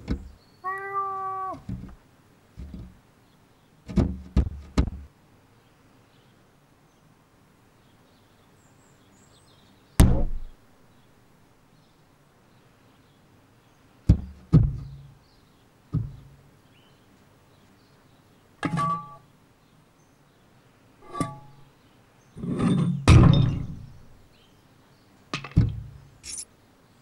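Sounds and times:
cartoon thuds against glass: 0:10.0 - 0:10.5.

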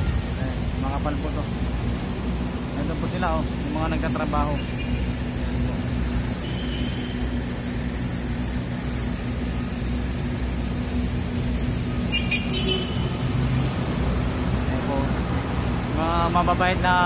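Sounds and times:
construction machinery engines droning: 0:00.0 - 0:17.0.

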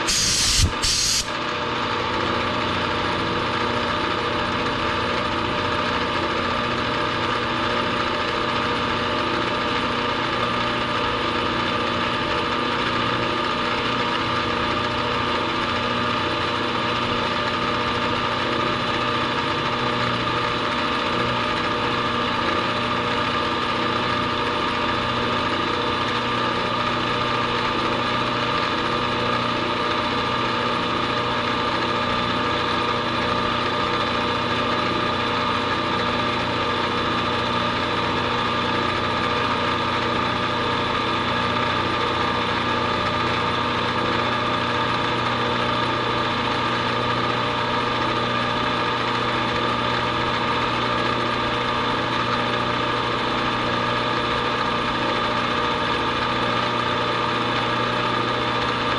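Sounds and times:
milling machine cutting metal: 0:00.0 - 0:01.4.

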